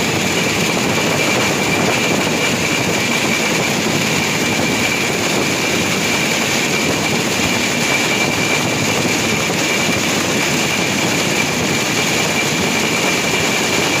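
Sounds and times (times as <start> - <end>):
high whine: 0.0 - 14.0
rail car running noise: 0.0 - 14.0.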